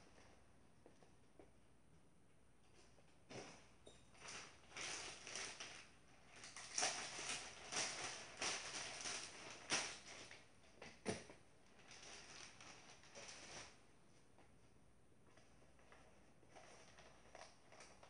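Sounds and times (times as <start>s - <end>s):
plastic bag rustling: 3.3s - 10.6s, 11.6s - 13.8s, 15.8s - 18.0s.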